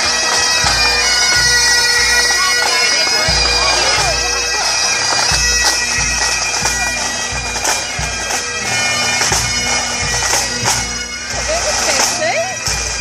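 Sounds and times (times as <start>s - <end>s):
bagpipes playing a march: 0.0s - 13.0s.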